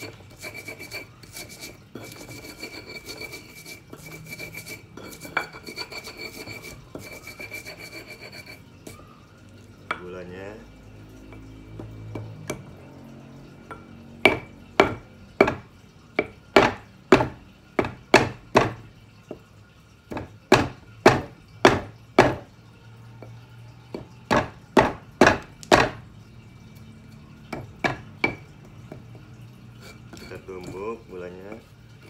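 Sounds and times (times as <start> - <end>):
pestle pounding in stone mortar: 14.2 - 18.8, 20.1 - 22.5, 23.9 - 26.0.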